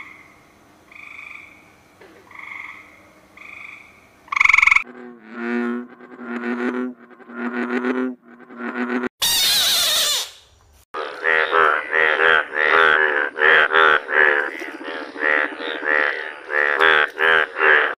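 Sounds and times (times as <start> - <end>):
chorus of frogs croaking: 0.0 - 1.6, 2.2 - 4.9, 11.0 - 17.9
bullfrog croaking: 2.2 - 9.1, 11.0 - 17.9.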